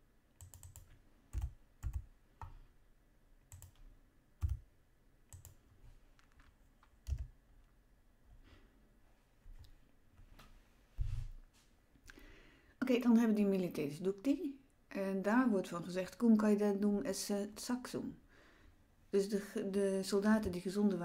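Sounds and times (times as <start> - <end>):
keyboard keys clicking: 0.4 - 2.6, 3.5 - 4.6, 5.3 - 5.6, 6.2 - 7.3.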